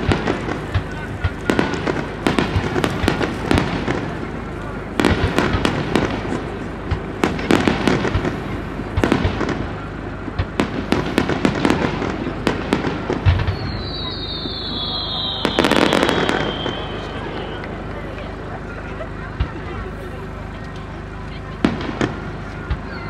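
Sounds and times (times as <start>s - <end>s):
fireworks bangs and crackles: 0.0s - 23.0s
firework whistle sliding down: 13.4s - 17.7s.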